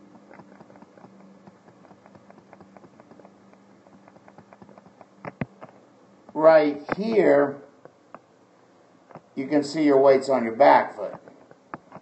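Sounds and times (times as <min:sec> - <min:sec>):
computer mouse clicking: 0:00.0 - 0:05.8
low steady hum: 0:00.0 - 0:12.0.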